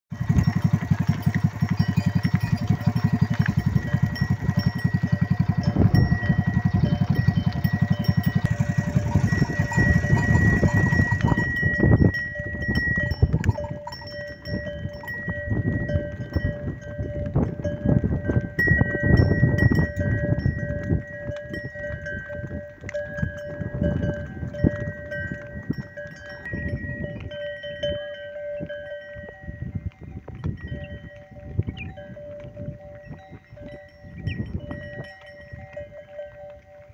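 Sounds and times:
cattle neck bells jangling: 0.1s - 36.9s
low rumbling noise: 0.2s - 20.2s.

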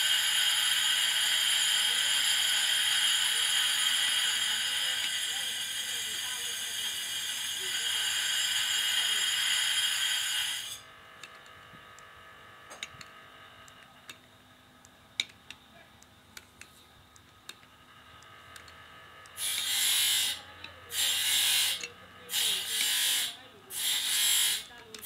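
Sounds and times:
machine high whine: 0.0s - 13.8s, 17.6s - 25.0s
hand tool clicks: 15.2s - 15.6s.

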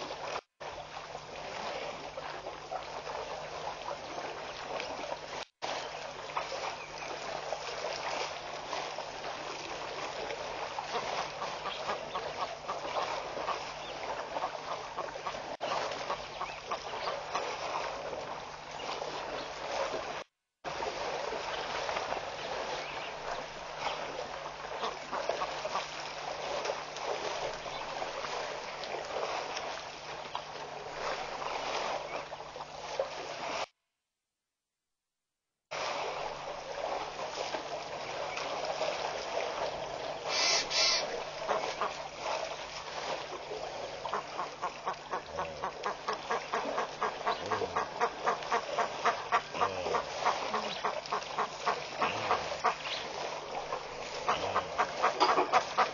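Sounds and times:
many birds chattering: 45.1s - 55.9s.

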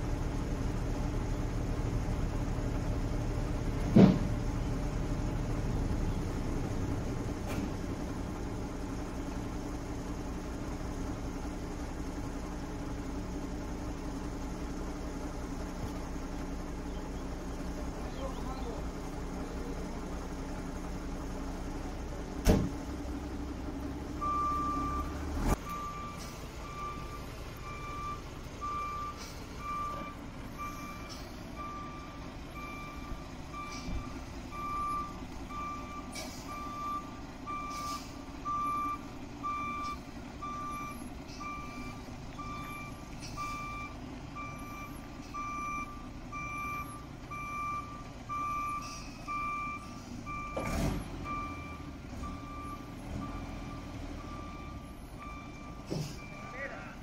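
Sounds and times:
truck warning beeper: 24.2s - 57.0s.

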